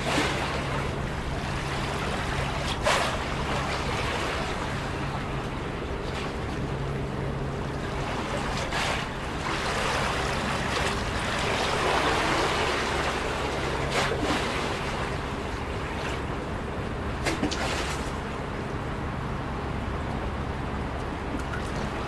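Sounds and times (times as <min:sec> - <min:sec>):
water splashes: 0:00.0 - 0:18.6, 0:21.2 - 0:22.0
waves lapping against seawall: 0:00.0 - 0:22.0.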